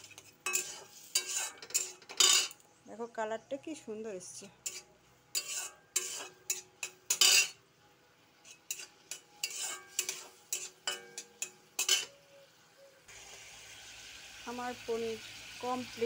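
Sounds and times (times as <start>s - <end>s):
metal spatula scraping a pan: 0.0s - 2.6s, 4.4s - 7.6s, 8.3s - 12.3s
curry sizzling: 0.0s - 2.8s, 3.7s - 16.0s.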